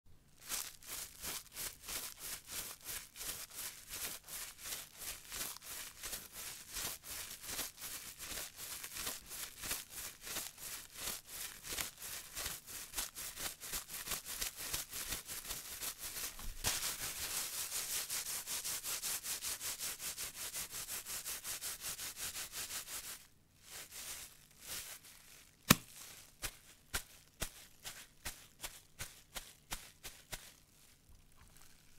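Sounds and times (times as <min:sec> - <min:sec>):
footsteps through grass: 0:00.4 - 0:13.1, 0:23.6 - 0:31.1.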